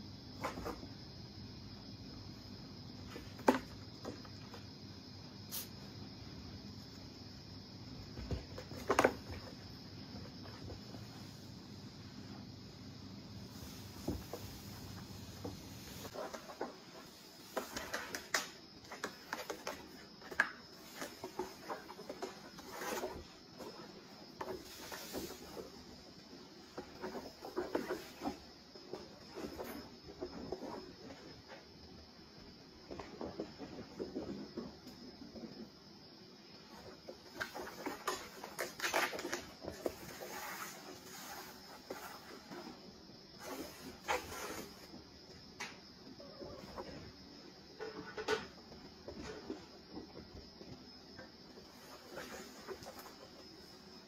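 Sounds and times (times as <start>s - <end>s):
kittens scrabbling on cardboard: 15.4s - 31.6s, 36.7s - 42.8s.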